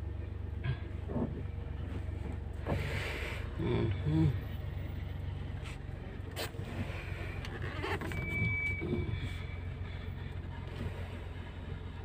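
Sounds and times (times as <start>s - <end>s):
car cabin low hum: 0.0s - 12.0s
short high squeak: 7.6s - 9.2s.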